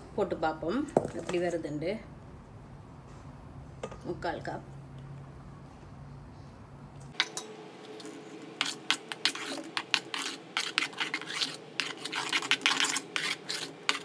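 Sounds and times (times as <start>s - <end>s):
spoon scraping a bowl: 7.2s - 14.0s.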